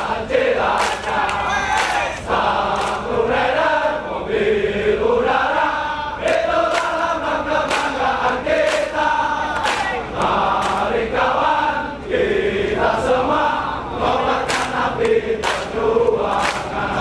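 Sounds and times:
soldiers chanting in unison: 0.0 - 17.0
shouted accents: 1.4 - 2.2.

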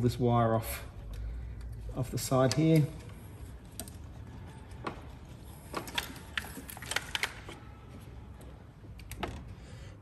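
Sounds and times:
plastic clips clicking and rattling: 5.7 - 7.6.

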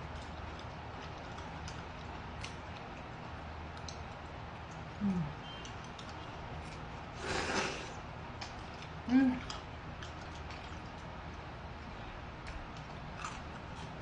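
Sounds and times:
noodle slurp: 7.2 - 8.0.

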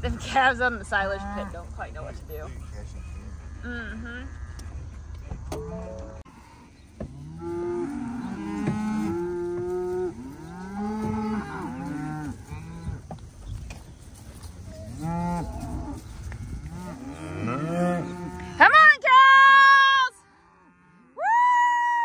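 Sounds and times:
cattle mooing and bawling: 0.0 - 4.8, 5.6 - 13.1, 14.6 - 18.8.

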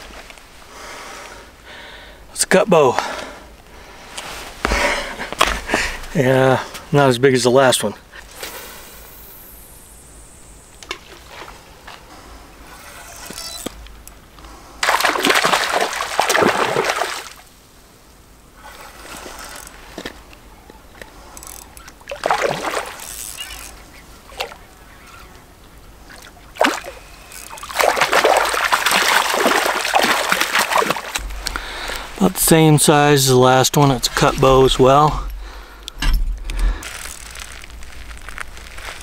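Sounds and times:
fish splashing in water: 14.8 - 17.5, 21.6 - 25.3, 26.0 - 32.1.

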